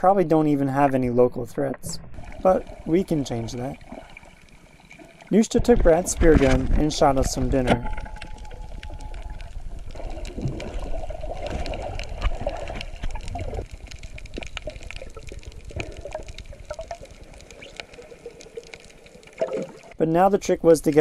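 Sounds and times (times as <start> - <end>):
underwater water noise: 0.3 - 20.0
clicks underwater: 5.6 - 19.9.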